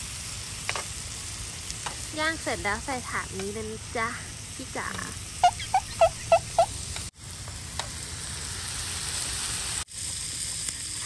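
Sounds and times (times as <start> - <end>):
steak sizzling in frying pan: 0.0 - 11.0
quick loud high chirps: 5.4 - 6.8.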